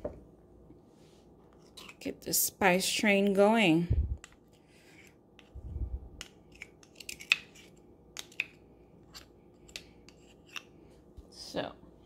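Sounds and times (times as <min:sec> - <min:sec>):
spoons clicking and scraping: 0:01.6 - 0:02.2, 0:06.2 - 0:10.8.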